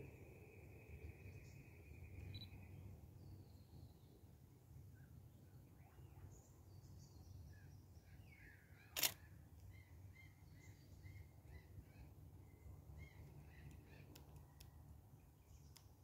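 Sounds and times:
faint birdsong chirps: 0.0 - 16.0
camera shutter click: 9.0 - 9.2.

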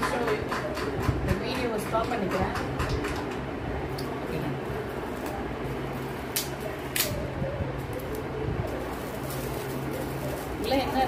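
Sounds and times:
fan hum: 0.0 - 11.0
gift wrapping crackling: 4.2 - 11.0.

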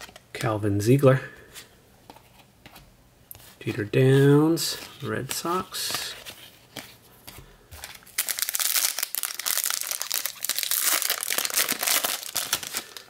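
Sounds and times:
foil wrapper crinkling: 7.9 - 13.0.

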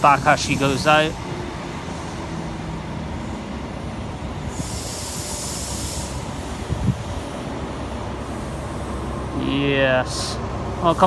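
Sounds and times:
train coaches rumbling: 0.0 - 11.0
high hiss: 4.4 - 11.0.

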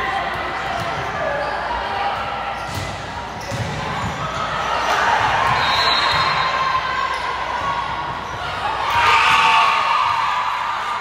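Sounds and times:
ball bouncing on hard court: 2.6 - 4.4.

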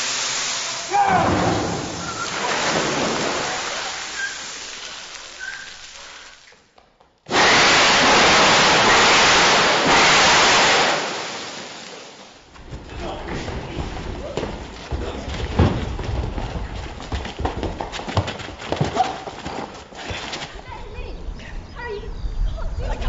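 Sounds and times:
rushing surge like crashing wave: 7.3 - 12.2.

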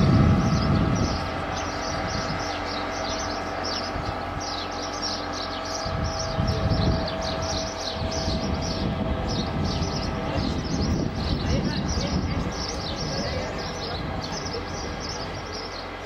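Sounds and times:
low rumble: 0.0 - 16.0
small birds chirping: 0.0 - 16.0.

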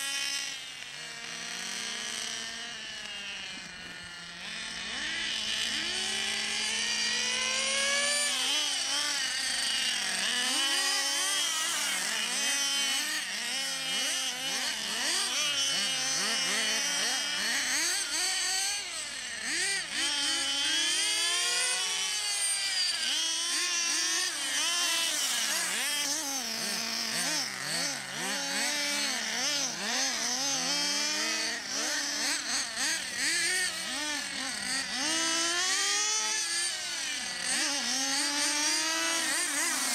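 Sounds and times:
model car motors whining: 0.0 - 39.9.

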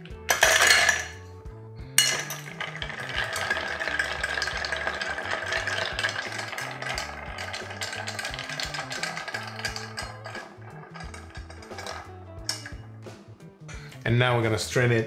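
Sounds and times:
background music: 0.0 - 15.0
ice cubes tipped into glass: 0.3 - 1.2, 2.0 - 12.8
bar spoon stirring ice: 2.0 - 12.8.

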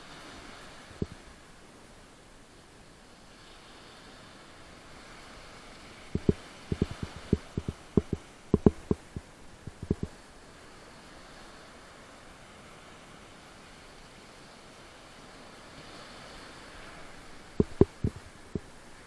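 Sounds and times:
faint hiss: 0.0 - 19.0
surf washing on sand: 0.0 - 19.0
soft low thumps: 6.2 - 10.1, 17.6 - 18.2.

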